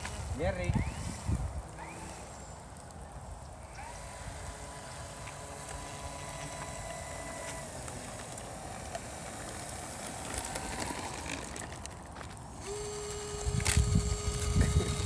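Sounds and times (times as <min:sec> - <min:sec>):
model plane motor whining: 0:00.0 - 0:02.7, 0:03.5 - 0:15.0.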